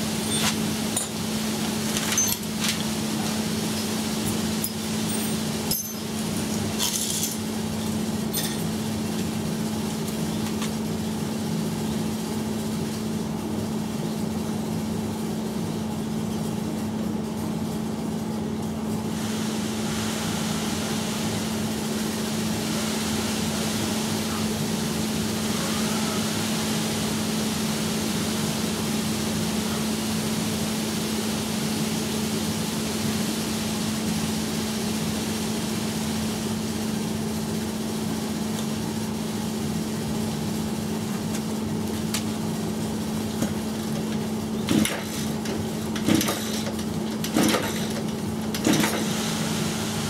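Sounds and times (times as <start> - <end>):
steady background hum: 0.0 - 50.0
metal hand tools clinking: 4.6 - 6.1, 8.3 - 8.7.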